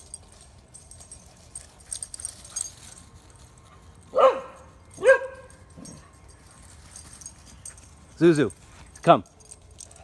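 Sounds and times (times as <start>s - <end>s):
dog barking: 4.1s - 5.5s.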